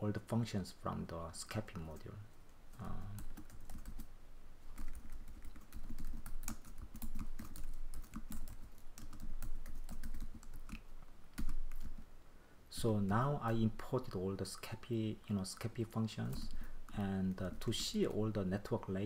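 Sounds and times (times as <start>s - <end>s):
computer keyboard typing: 2.7s - 4.1s, 4.7s - 12.0s.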